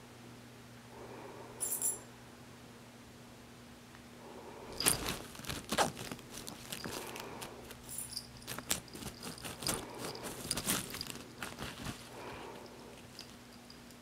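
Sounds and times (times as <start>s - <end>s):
cat playing with feather toy: 4.8s - 14.0s.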